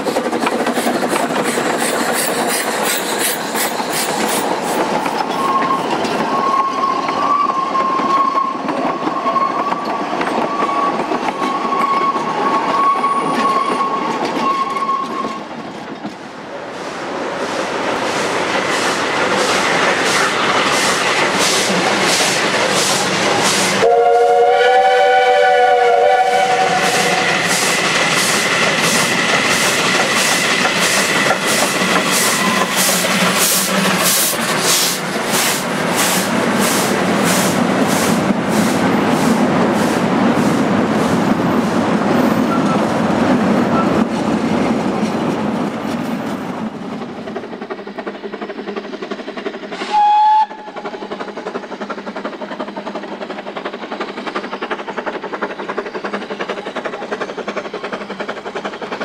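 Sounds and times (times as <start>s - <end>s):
steam locomotive exhaust beats: 16.8s - 59.0s
steam whistle: 23.8s - 27.8s, 49.8s - 50.8s.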